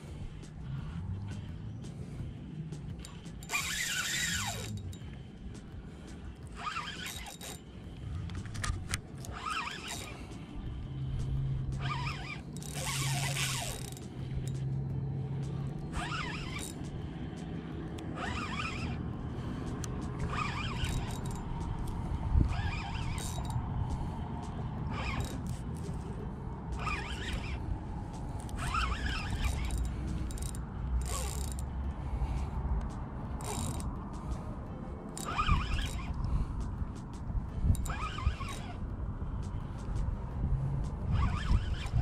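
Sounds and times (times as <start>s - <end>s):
fishing reel cranking: 0.1s - 5.3s, 5.9s - 34.5s, 35.1s - 42.0s
fishing reel drag buzzing: 2.8s - 5.2s, 6.3s - 14.8s, 15.7s - 17.2s, 18.0s - 32.4s, 33.3s - 34.5s, 35.1s - 36.8s, 37.5s - 40.0s, 40.6s - 42.0s.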